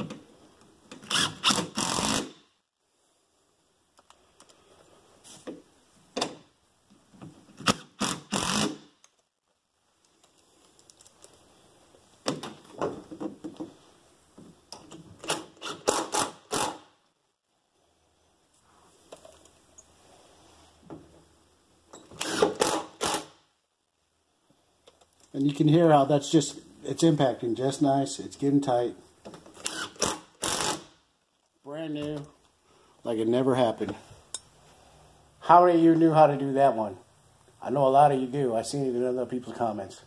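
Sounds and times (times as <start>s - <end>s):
impact driver driving screws: 1.0s - 2.4s, 7.6s - 8.9s, 15.2s - 16.8s, 22.1s - 23.4s, 29.6s - 30.9s.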